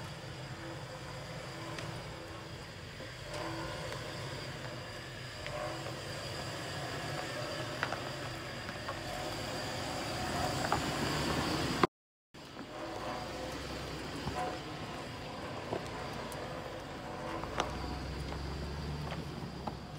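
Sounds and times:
engine running low: 0.0 - 19.9.

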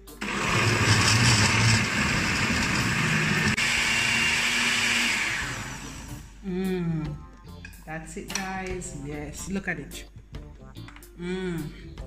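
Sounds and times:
blender running: 0.0 - 6.4.

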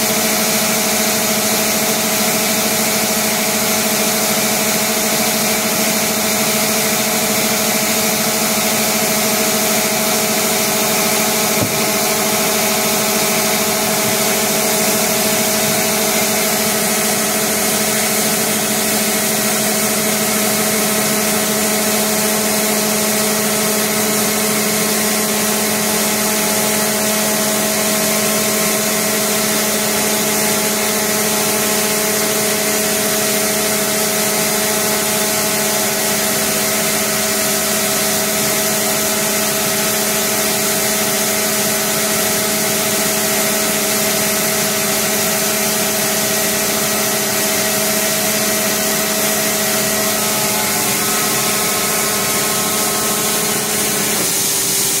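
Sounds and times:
machine whine of held tones: 46.3 - 55.0
hiss of cutting: 48.3 - 55.0.

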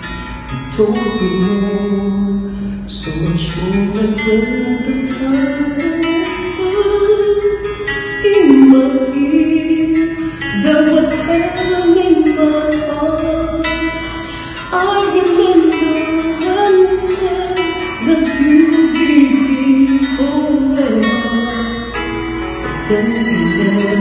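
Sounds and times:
acoustic guitar: 0.0 - 24.0
man singing slow song: 0.5 - 12.4, 18.0 - 22.0, 22.7 - 24.0.

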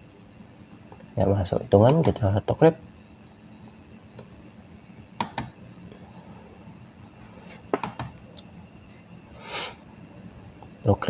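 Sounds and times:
computer mouse clicks: 5.2 - 5.5, 7.7 - 8.2.

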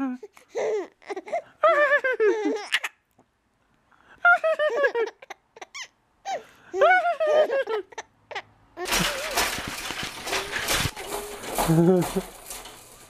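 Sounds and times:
baby laughing and squealing: 0.6 - 3.0, 4.6 - 10.8
rustling: 8.8 - 13.0.

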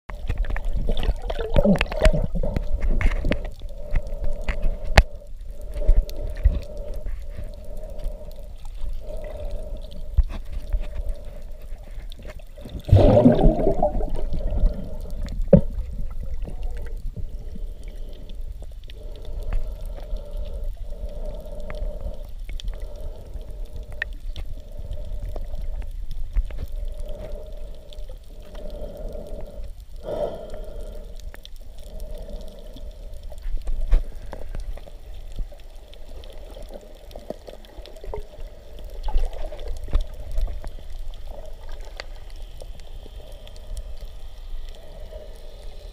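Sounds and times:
underwater bubbling: 0.1 - 45.9
water rushing: 12.6 - 17.0.

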